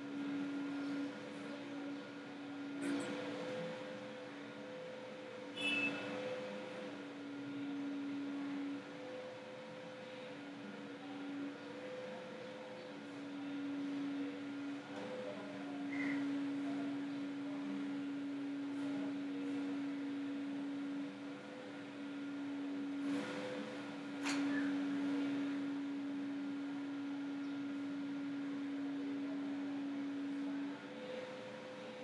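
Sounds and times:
steady hum: 0.0s - 32.0s.

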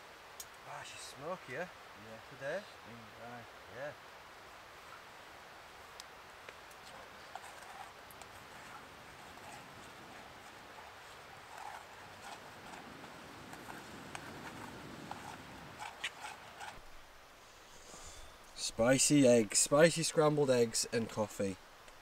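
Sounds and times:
faint steady hiss: 0.0s - 22.0s
campfire clicks and taps: 0.3s - 0.6s, 5.9s - 8.4s.

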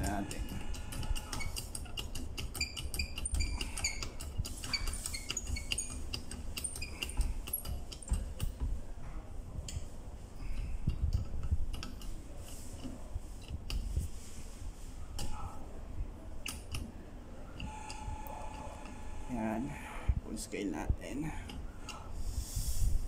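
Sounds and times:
hand pump clicks and knocks: 0.0s - 8.8s
pump high squeaks: 2.6s - 6.0s.

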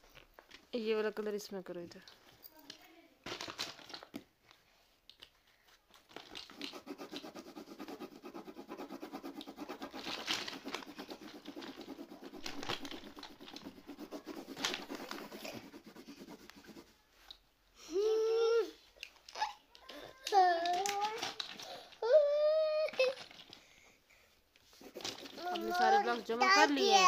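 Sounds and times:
pencil scribbling on paper: 6.5s - 17.1s, 24.7s - 26.7s.

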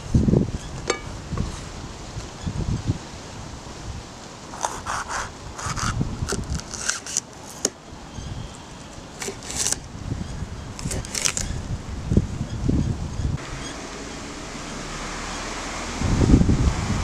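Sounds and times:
knife slicing bell pepper: 4.6s - 7.7s.

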